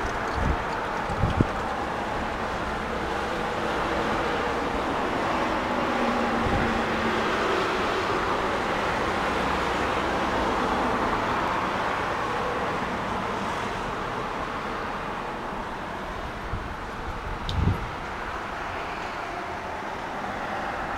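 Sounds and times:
road traffic noise: 0.0s - 20.9s.

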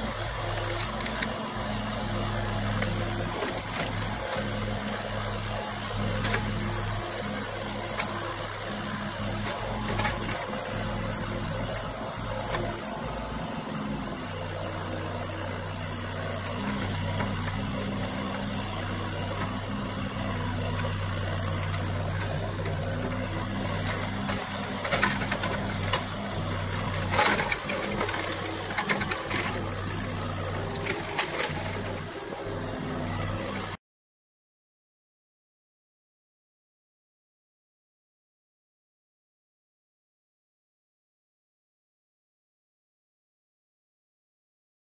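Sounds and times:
excavator diesel engine running: 0.0s - 33.8s.

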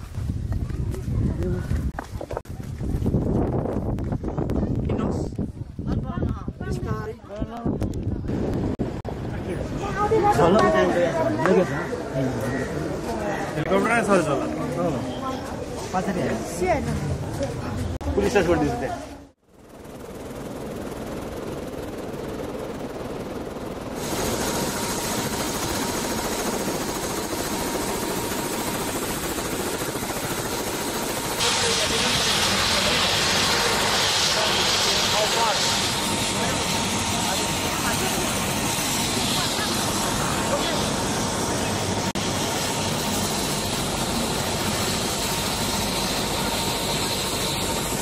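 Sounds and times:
helicopter engine and rotor: 19.4s - 48.0s
thin steady whine: 19.5s - 48.0s.

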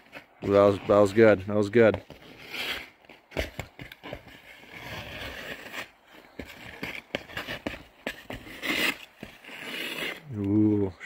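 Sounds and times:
ice skates scraping: 0.0s - 10.3s
skate stride clicks: 1.8s - 10.6s.

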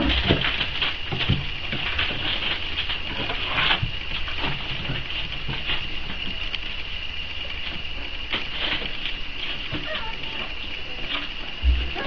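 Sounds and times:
paws scratching on cardboard: 0.0s - 6.9s, 7.5s - 12.0s
puppies squeaking and whimpering: 9.6s - 11.2s, 11.8s - 12.0s.

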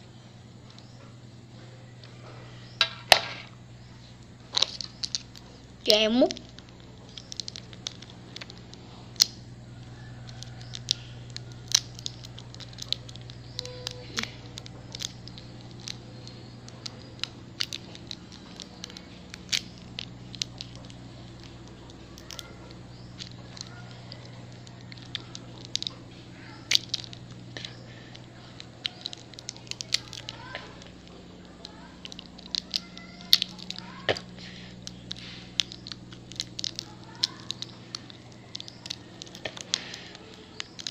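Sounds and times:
steady low hum: 0.0s - 40.9s
plastic wrapper crinkling: 4.2s - 40.9s
sharp clicks: 10.2s - 40.9s.

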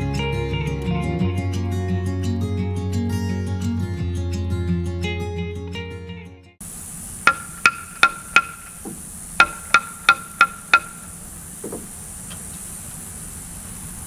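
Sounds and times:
hammer striking steel bolt: 7.3s - 11.1s.

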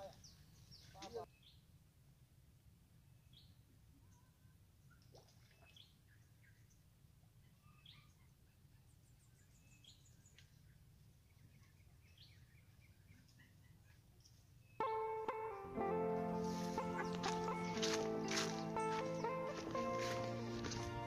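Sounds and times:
faint bird chirps: 7.4s - 14.8s.

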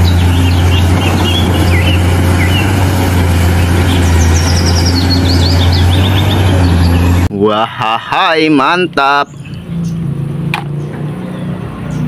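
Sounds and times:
excavator diesel engine droning: 0.0s - 10.8s
birds chirping: 0.0s - 12.0s.

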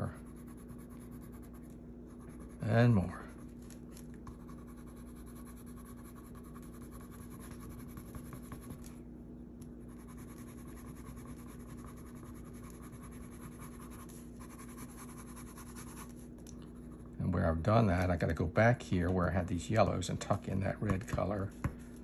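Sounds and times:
pencil scratching on paper: 0.0s - 3.1s, 4.3s - 8.9s, 9.9s - 16.2s
steady low hum: 0.0s - 22.0s.

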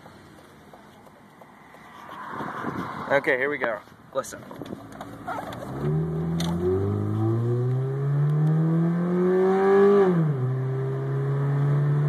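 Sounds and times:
car engine accelerating: 4.6s - 12.0s.

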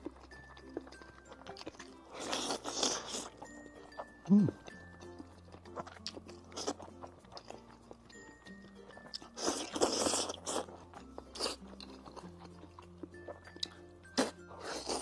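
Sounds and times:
chewing: 0.0s - 15.0s
person slurping noodles: 9.4s - 10.7s.

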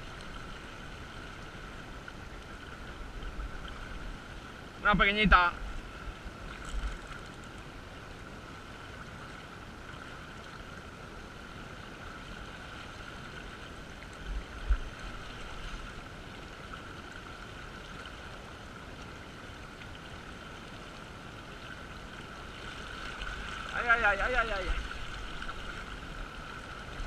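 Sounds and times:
river current rushing: 0.0s - 27.0s.

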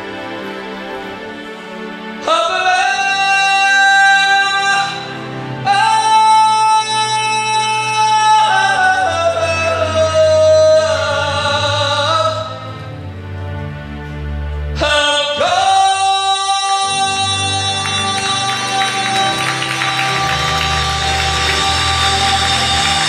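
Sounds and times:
gospel singer holding high notes: 14.8s - 23.0s
sustained low accompaniment: 16.9s - 23.0s.

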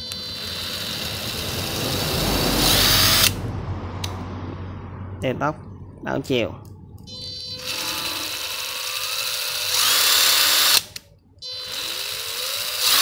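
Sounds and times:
cordless drill motor whine: 0.0s - 3.4s, 7.1s - 13.0s.

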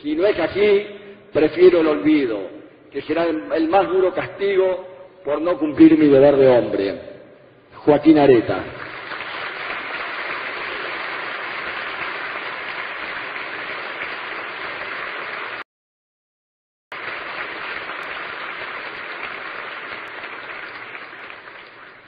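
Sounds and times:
audience applauding: 8.8s - 15.6s, 16.9s - 22.0s.

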